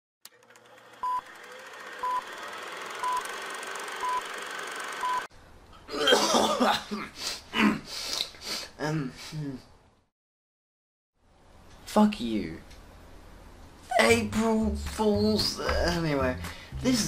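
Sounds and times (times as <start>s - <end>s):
short electronic beeps: 4.0s - 4.2s, 5.0s - 5.3s
breathy human vocal sounds: 7.0s - 9.7s, 16.4s - 16.9s.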